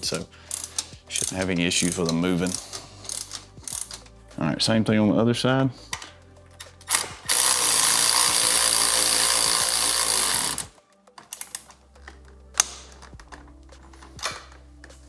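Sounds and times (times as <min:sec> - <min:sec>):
power ratchet running: 0:06.9 - 0:10.7.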